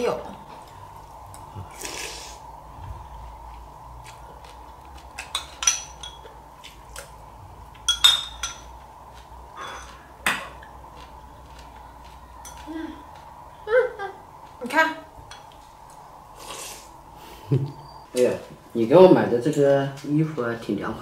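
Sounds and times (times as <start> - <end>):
spoon clinking on ceramic bowl: 5.2 - 6.3, 7.8 - 8.7.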